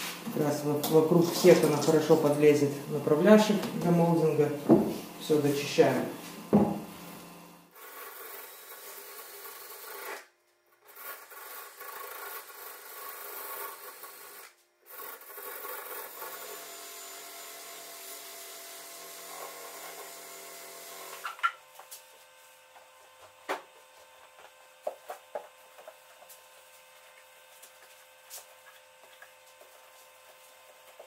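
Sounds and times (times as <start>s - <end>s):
drill motor whirring: 6.6s - 21.8s.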